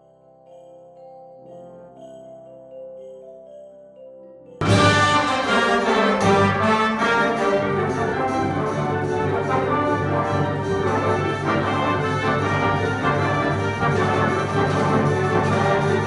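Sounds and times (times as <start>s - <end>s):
brass: 4.6s - 16.0s
concert band playing: 4.6s - 16.0s.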